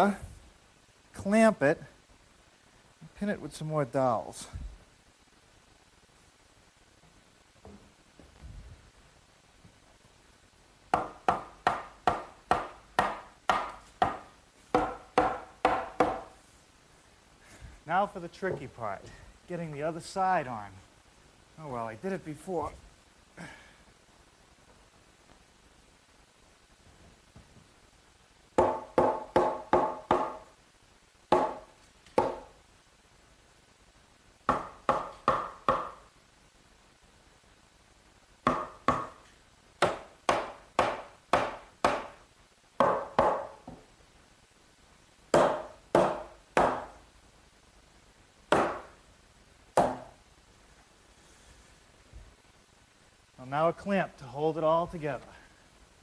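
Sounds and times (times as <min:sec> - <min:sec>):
mallet knocking wooden post: 0:10.9 - 0:16.3, 0:28.6 - 0:30.4, 0:31.3 - 0:32.5, 0:34.5 - 0:36.0, 0:38.4 - 0:39.2, 0:39.8 - 0:42.2, 0:42.8 - 0:43.8, 0:45.4 - 0:46.9, 0:48.5 - 0:48.9, 0:49.8 - 0:50.2.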